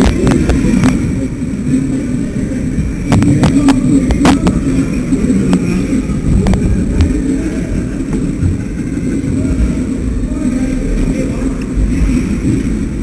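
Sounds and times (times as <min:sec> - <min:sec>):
microphone rubbing and buffeting: 0:00.0 - 0:10.3
low rumbling microphone static: 0:00.0 - 0:13.0.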